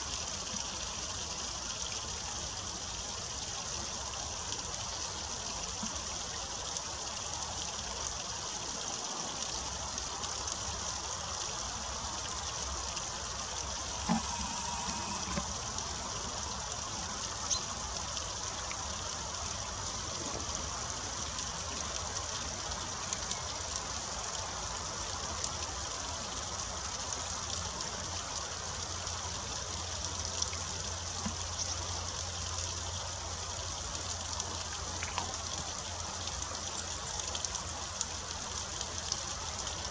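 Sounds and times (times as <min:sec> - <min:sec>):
water trickling into a pool: 0:00.0 - 0:39.9
faint ticks: 0:13.8 - 0:16.1.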